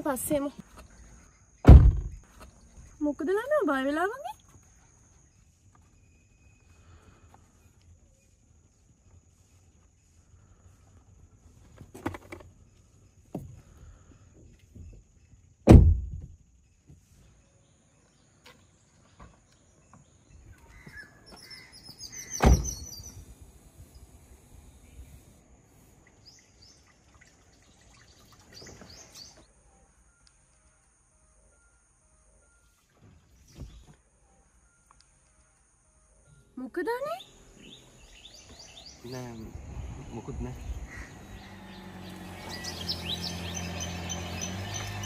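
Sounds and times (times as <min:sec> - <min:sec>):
car doors shutting: 0:01.6 - 0:02.2, 0:15.6 - 0:16.3, 0:22.3 - 0:23.0
birds chirping: 0:16.6 - 0:25.4, 0:26.0 - 0:31.7, 0:33.3 - 0:45.0.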